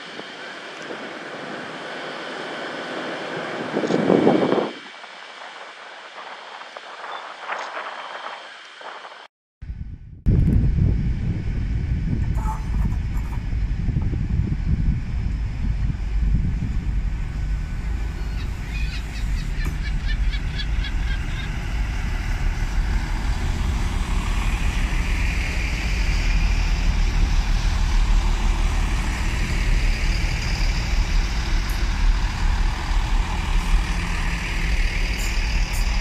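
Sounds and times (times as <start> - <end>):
diesel engine drone: 0.0 - 7.0, 9.6 - 36.0
wheel and rail noise: 12.2 - 36.0.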